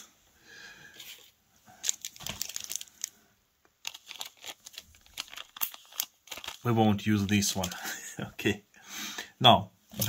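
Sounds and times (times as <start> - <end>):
plastic bag crinkling: 1.0 - 3.2, 3.8 - 8.1.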